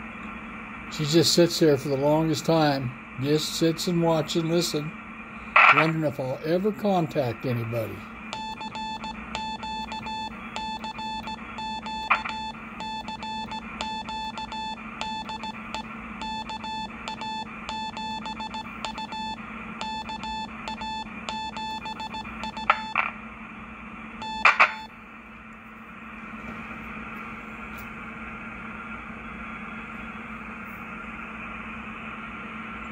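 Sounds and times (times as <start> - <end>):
steady low hum: 0.0 - 32.9
morse code beeps: 8.3 - 23.0, 24.2 - 24.9
short clicks: 12.0 - 12.4.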